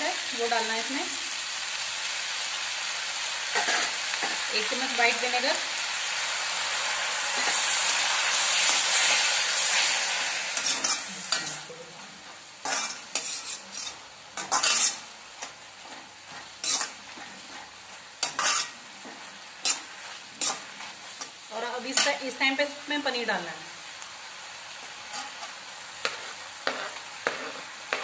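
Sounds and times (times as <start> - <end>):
vegetables sizzling in a pan: 0.0 - 28.0
steel spatula scraping a pan: 3.5 - 4.5, 7.3 - 22.4, 25.0 - 28.0.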